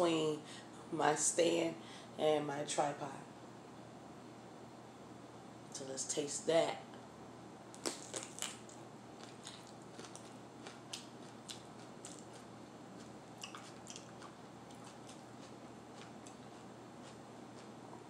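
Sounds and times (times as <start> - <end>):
crisp bite into pepper: 7.8 - 10.3
crunchy chewing: 7.8 - 17.8.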